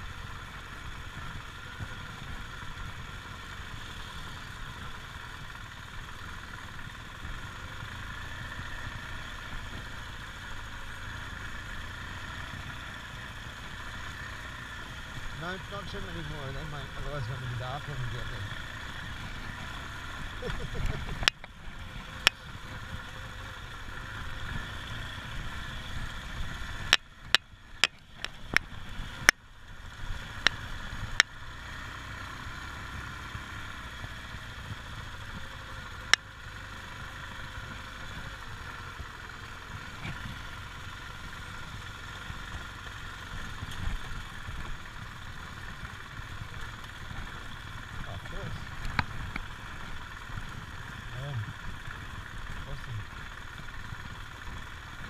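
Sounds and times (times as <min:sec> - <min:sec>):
motorcycle engine running: 0:00.0 - 0:55.0
wind and road noise: 0:00.0 - 0:55.0.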